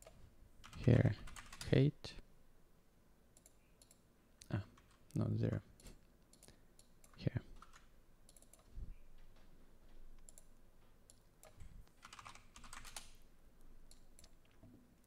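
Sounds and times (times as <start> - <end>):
typing on keyboard: 0.0 - 1.7, 4.7 - 5.0, 6.3 - 8.7, 11.1 - 13.2.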